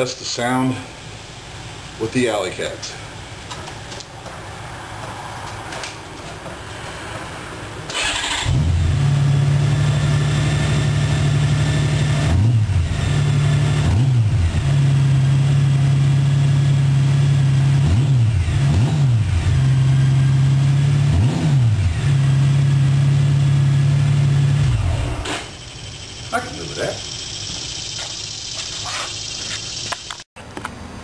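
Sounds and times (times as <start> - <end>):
engine revving: 7.9 - 29.3
motorcycle engine idling: 25.5 - 30.2.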